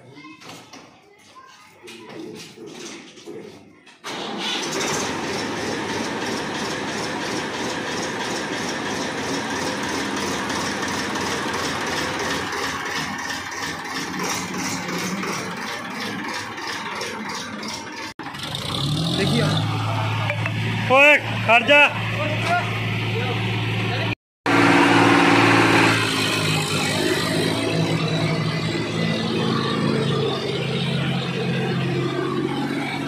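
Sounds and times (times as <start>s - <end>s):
tractor diesel engine chugging: 4.0s - 18.7s.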